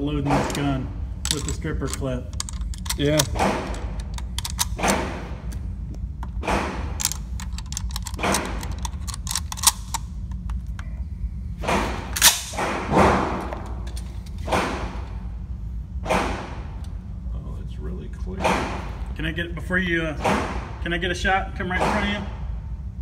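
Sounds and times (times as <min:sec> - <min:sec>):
metallic rifle handling clicks: 0:01.2 - 0:05.6, 0:07.0 - 0:10.4
gunshots indoors: 0:02.8 - 0:05.5, 0:11.6 - 0:13.6.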